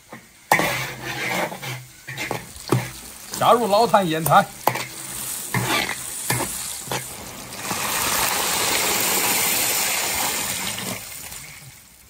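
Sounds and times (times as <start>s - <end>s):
water pouring into hot wok: 4.6s - 12.0s.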